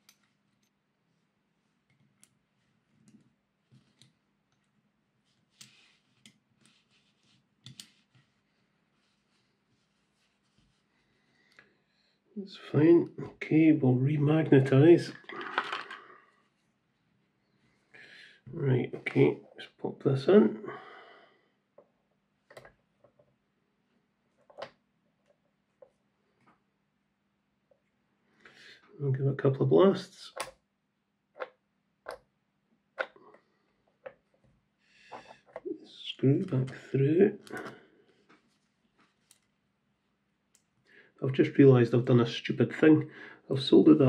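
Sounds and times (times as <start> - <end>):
faint metal clicks and taps: 7.6 - 7.9.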